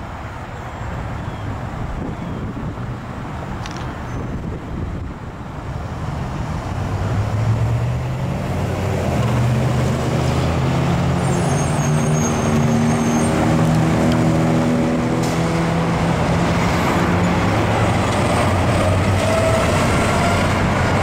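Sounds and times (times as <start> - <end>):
passing cars: 0.0 - 21.0
large vehicle engine: 2.2 - 21.0
high squeal: 11.2 - 13.4, 19.2 - 20.5.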